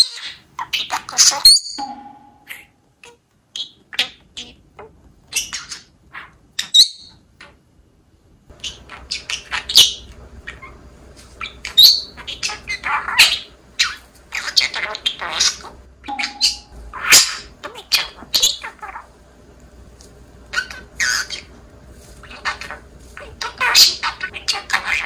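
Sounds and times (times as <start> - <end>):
parrots chirping and squawking: 0.0 - 7.6, 8.5 - 19.1, 20.4 - 25.0.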